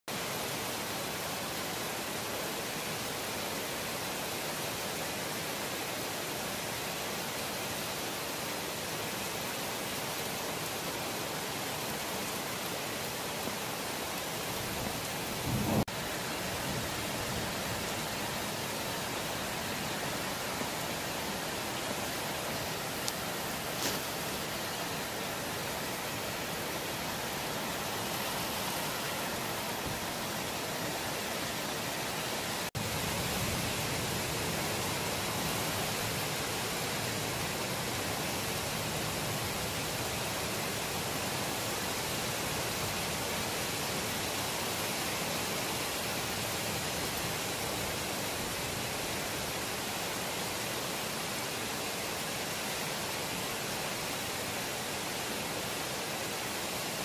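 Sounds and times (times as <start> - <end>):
heavy rain hissing: 0.1 - 57.0
low thunder rumble: 15.4 - 17.5.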